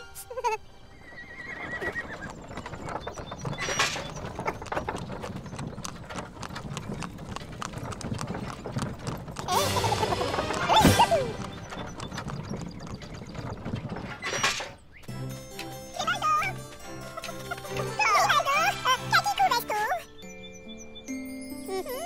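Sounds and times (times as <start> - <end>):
hooves clip-clopping: 0.7 - 20.0
horse whinny: 1.0 - 2.3.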